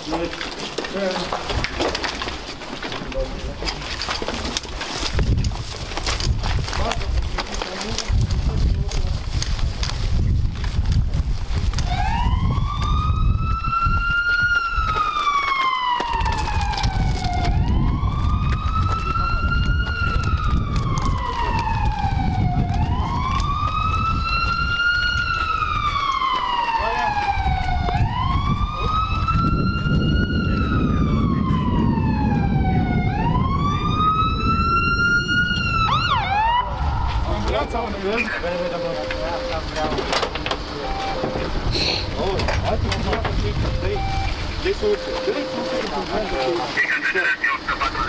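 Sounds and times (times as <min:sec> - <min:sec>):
emergency vehicle siren wailing: 0:11.6 - 0:48.0
low rumble: 0:27.3 - 0:40.0, 0:40.9 - 0:45.8.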